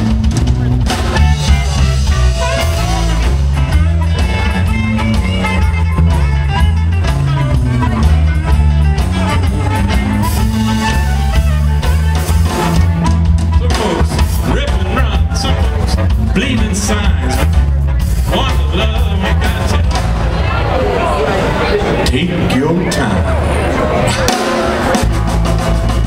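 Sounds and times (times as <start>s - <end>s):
harmonica through microphone: 0.0s - 20.2s
drum kit: 0.0s - 20.8s, 23.9s - 26.0s
bass guitar: 0.0s - 26.0s
electric guitar: 0.0s - 26.0s.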